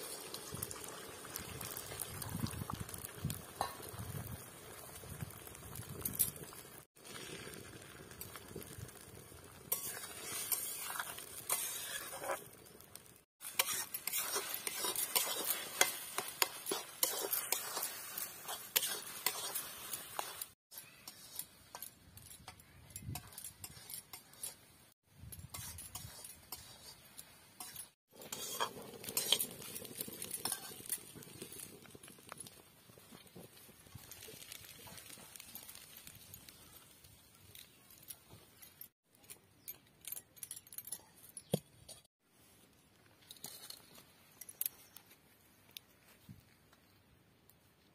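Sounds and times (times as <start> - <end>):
egg sizzling in oil: 0.0 - 21.9, 25.5 - 36.8
metal spatula scraping pan: 9.7 - 12.5, 13.4 - 24.6, 25.4 - 31.1.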